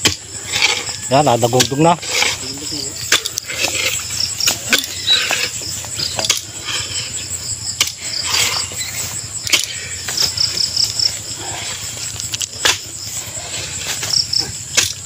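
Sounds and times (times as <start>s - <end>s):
iron bar striking hard ground: 0.0s - 6.6s, 7.8s - 8.7s, 9.5s - 10.2s, 12.5s - 13.0s, 14.0s - 15.0s
crickets trilling: 0.0s - 15.0s.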